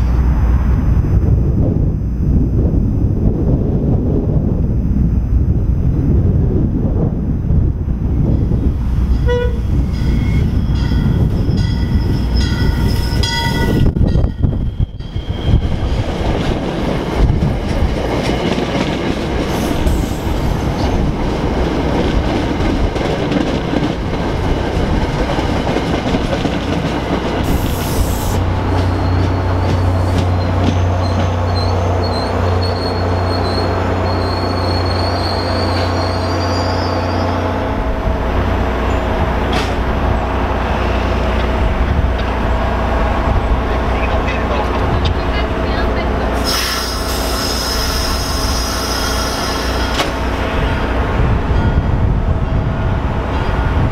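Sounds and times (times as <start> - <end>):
diesel locomotive hum: 0.0 - 53.9
train horn: 9.2 - 10.3
train wheels clattering on rails: 9.2 - 35.0, 38.9 - 40.2, 46.4 - 50.6
brake squeal: 28.8 - 37.4, 46.4 - 50.0.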